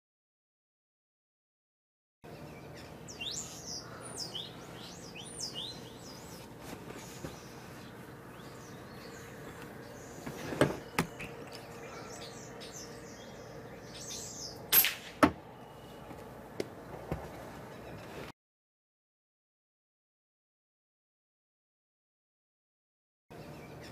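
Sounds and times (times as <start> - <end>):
starlings chirping: 2.3 - 18.3, 23.3 - 23.9
air rifle shot: 14.7 - 15.4.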